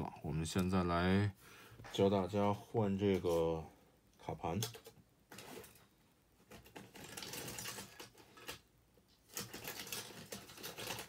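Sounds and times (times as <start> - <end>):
plastic parts clicking: 4.5 - 5.8.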